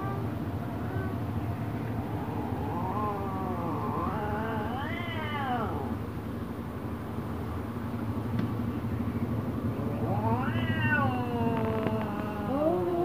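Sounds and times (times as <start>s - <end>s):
low steady rumble: 0.0s - 13.0s
cat yowling angrily: 2.0s - 6.0s, 10.0s - 13.0s.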